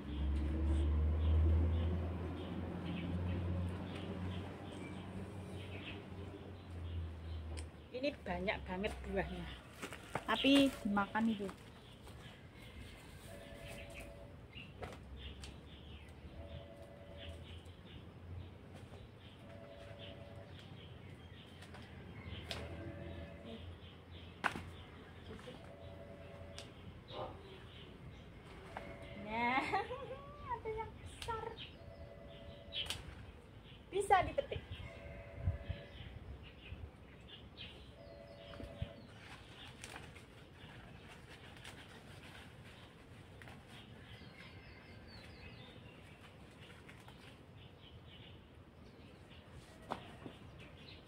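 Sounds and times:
birds calling: 1.2s - 42.0s
leaves rustling: 8.9s - 14.3s, 38.4s - 47.7s
stems snapping: 14.8s - 15.6s, 21.6s - 22.8s, 24.4s - 24.9s, 31.1s - 31.4s, 32.8s - 33.2s
bird calls: 18.9s - 33.8s
leaves rustling while handled: 39.0s - 44.2s.

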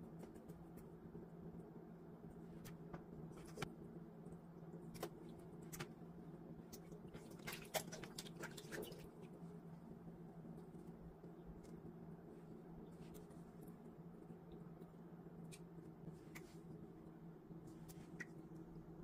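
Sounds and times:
faint steady hum: 0.0s - 19.0s
wet squelches and splashes: 6.6s - 9.4s.

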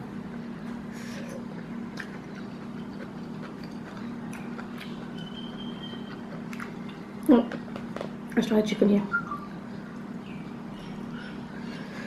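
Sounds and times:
steady low hum: 0.0s - 12.0s
person chewing rice: 0.2s - 8.3s.

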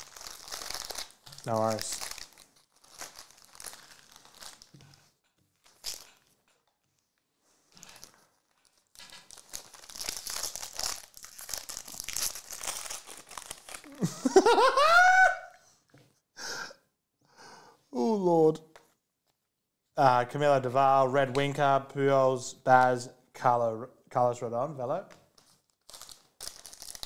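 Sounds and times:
card pack wrappers crinkling: 0.0s - 4.9s, 5.6s - 6.6s, 7.8s - 14.1s, 25.4s - 27.0s.

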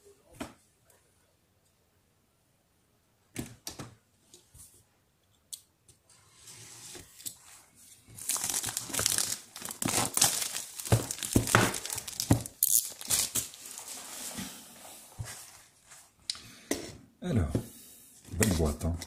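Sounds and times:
plastic wrapping crinkling and tearing: 8.2s - 14.2s.

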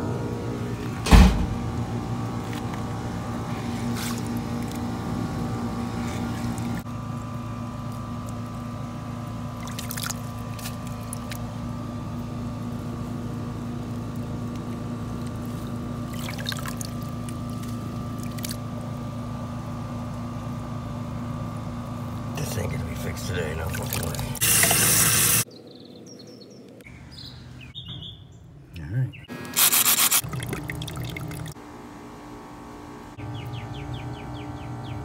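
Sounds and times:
motor humming: 0.0s - 25.5s, 29.3s - 35.0s
water sloshing and splashing: 6.0s - 6.9s, 9.5s - 11.5s, 15.2s - 18.8s, 23.5s - 24.7s, 30.2s - 31.6s.

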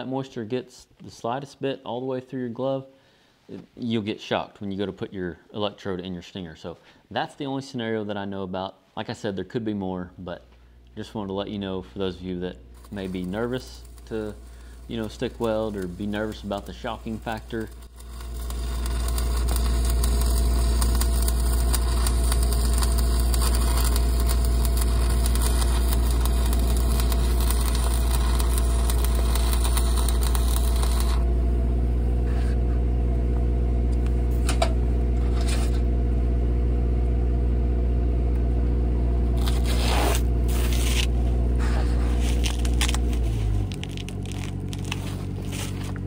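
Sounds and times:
welding arc burning: 12.7s - 32.5s, 39.3s - 46.0s
scrapes and clicks: 41.9s - 46.0s.

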